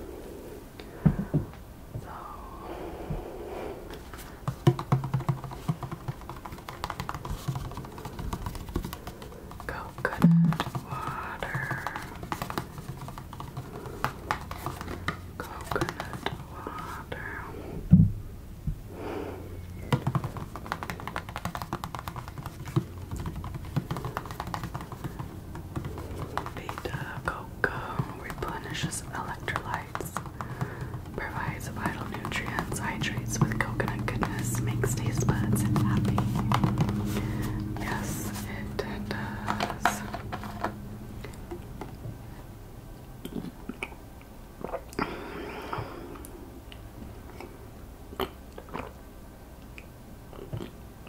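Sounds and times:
fingernails tapping on paperboard carton: 4.4s - 16.4s, 19.8s - 27.3s, 28.0s - 38.4s.

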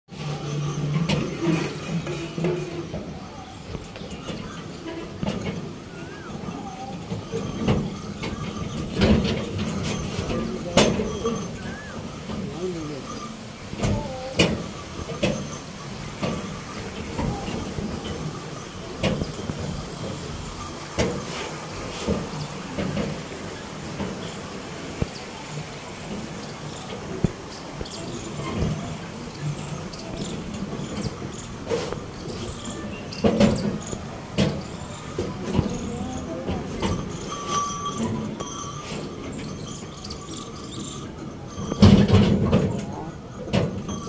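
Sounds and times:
cart knocks and jolts: 0.1s - 44.0s
cart rattling over dirt track: 0.1s - 44.0s
short ringing tone: 36.9s - 38.9s.

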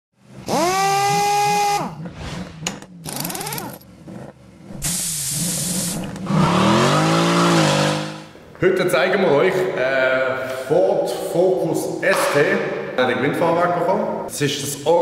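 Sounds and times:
engine revving: 0.2s - 8.4s
power tool whirring: 0.4s - 2.0s, 3.0s - 3.8s, 4.8s - 8.3s
burst of hiss: 4.8s - 6.0s.

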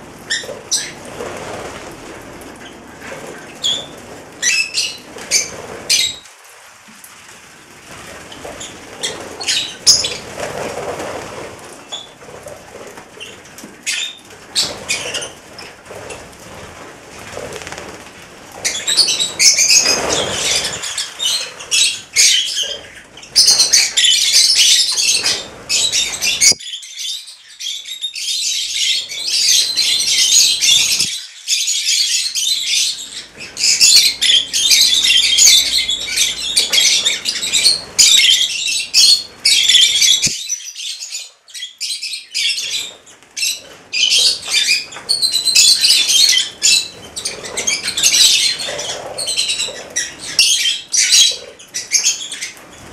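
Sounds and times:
lovebirds chattering: 17.6s - 31.2s, 32.1s - 40.3s, 41.6s - 52.9s.

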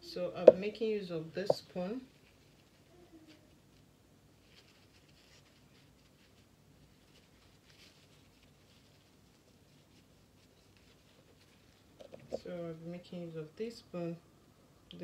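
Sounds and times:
faint ticks and rustles: 0.4s - 13.6s.

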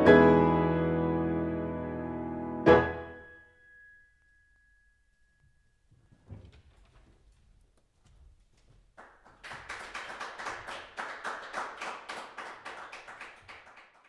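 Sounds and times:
audience applauding: 8.9s - 14.0s.

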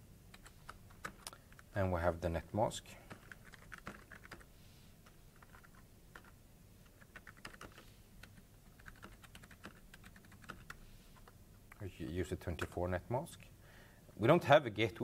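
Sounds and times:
faint keyboard typing: 0.3s - 1.8s, 2.9s - 12.8s.

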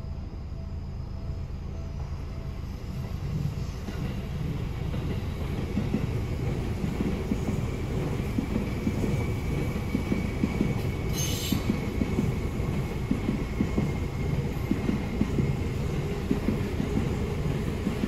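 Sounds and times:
faint high whine: 0.0s - 4.8s
train wheels rumbling on rails: 0.0s - 18.0s.

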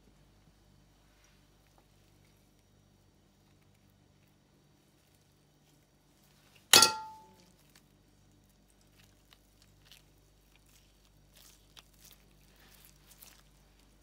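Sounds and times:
soft handling noises: 0.2s - 14.0s
metal spoon clanging on tray: 6.7s - 7.4s.

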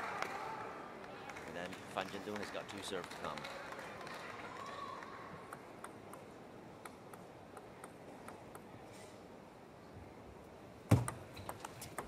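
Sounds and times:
table tennis ball bouncing: 5.5s - 8.7s, 10.9s - 12.0s.

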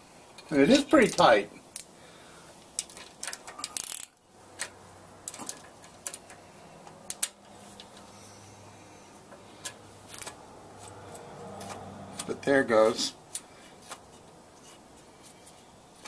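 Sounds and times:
wrench clicking on metal nut: 2.8s - 4.7s.

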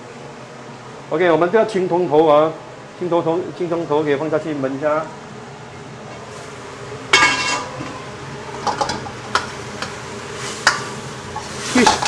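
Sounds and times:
metal spatula clanging in a wok: 7.1s - 7.8s.

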